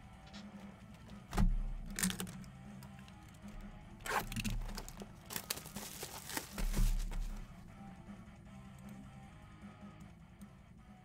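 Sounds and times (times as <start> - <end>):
background music: 0.0 - 11.0
plastic wrap crinkling: 4.1 - 7.4
box set down thump: 5.6 - 7.4.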